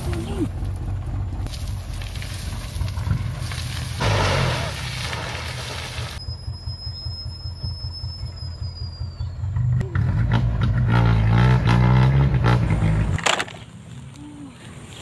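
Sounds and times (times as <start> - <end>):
diesel truck engine rumbling: 0.0 - 13.2.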